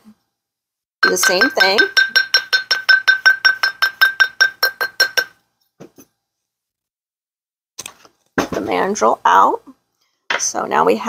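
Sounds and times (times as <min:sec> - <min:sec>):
mallet tapping ringing steel mandrel: 0:01.0 - 0:05.4.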